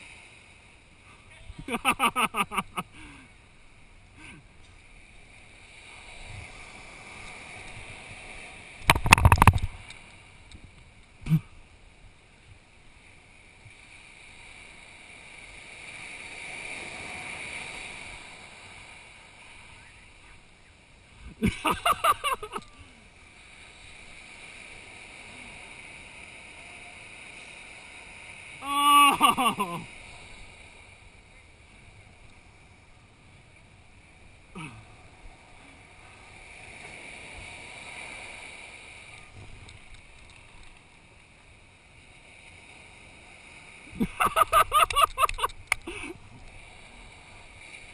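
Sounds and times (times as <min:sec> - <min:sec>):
surf: 0:00.0 - 0:47.9
wind: 0:00.0 - 0:47.9
people laughing: 0:01.6 - 0:02.9, 0:21.4 - 0:22.7, 0:28.6 - 0:29.9, 0:44.0 - 0:46.1
person yelling: 0:28.6 - 0:29.5
person calling: 0:28.6 - 0:29.8.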